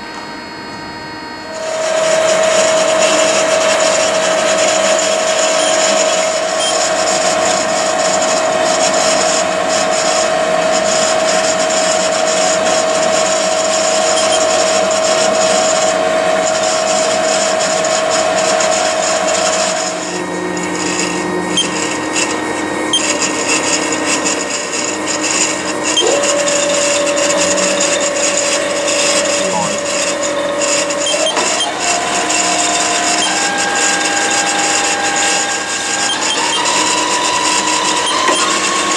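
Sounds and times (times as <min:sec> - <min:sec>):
motor tone rising in pitch: 0:00.0 - 0:07.0, 0:13.8 - 0:14.8, 0:24.8 - 0:38.9
lathe drive whine: 0:00.0 - 0:38.9.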